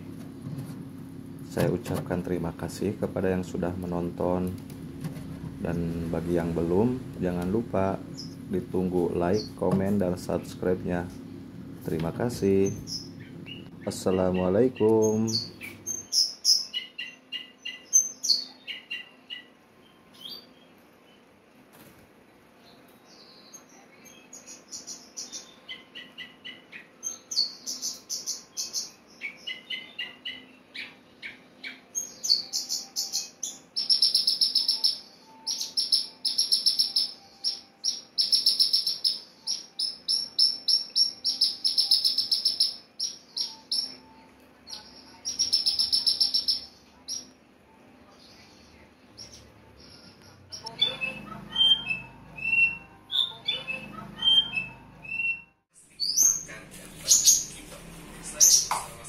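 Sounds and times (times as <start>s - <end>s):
bird chirping and trilling: 5.6s - 11.4s, 12.2s - 21.3s, 22.6s - 47.4s, 48.1s - 58.8s.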